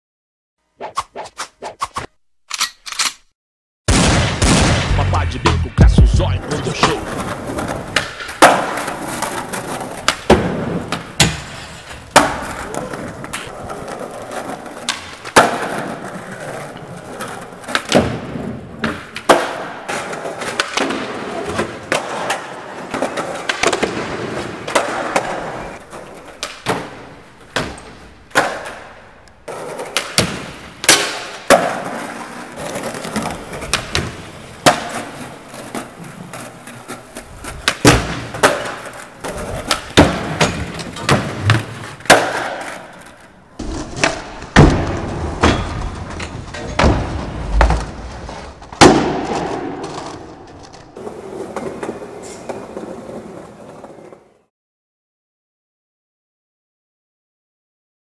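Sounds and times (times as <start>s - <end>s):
skateboard wheels rolling on floor: 6.5s - 54.5s
skateboard clacks landing: 37.5s - 46.0s.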